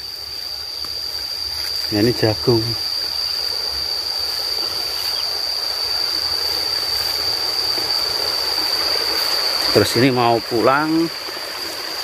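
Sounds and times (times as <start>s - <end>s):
insects droning: 0.0s - 12.0s
rushing hiss: 0.0s - 12.0s.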